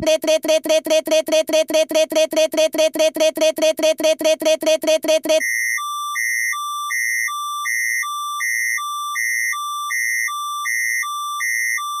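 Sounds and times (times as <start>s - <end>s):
two-tone emergency alert tone: 0.0s - 6.1s.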